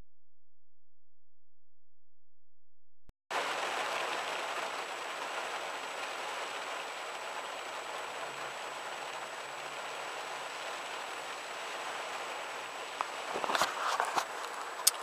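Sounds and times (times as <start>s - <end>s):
heavy rain on car roof: 3.3s - 15.0s.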